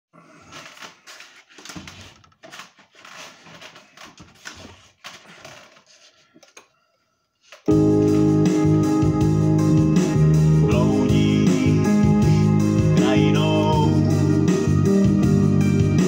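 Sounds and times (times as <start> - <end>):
rustling and knocking: 0.4 - 6.6
instrumental music: 7.7 - 16.0.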